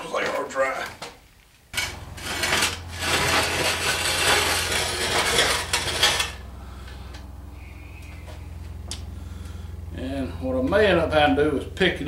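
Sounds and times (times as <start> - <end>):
metal clattering and scraping: 1.7 - 7.2
steady low hum: 1.7 - 12.0.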